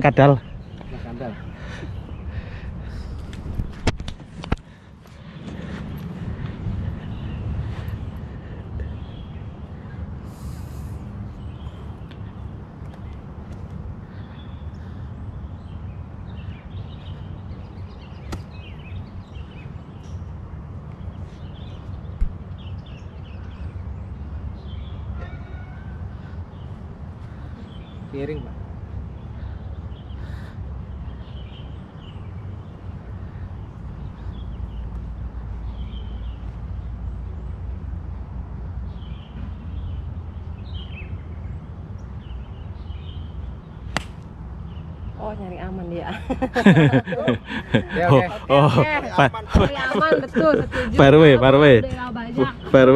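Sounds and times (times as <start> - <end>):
steady low rumble: 0.0 - 16.7
birds chirping: 0.0 - 52.9
wind rumble on microphone: 2.0 - 9.7.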